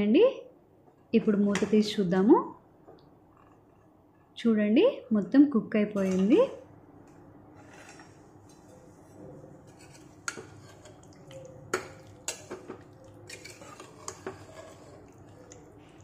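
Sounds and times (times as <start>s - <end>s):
metal ladle scraping a pot: 7.5s - 16.0s.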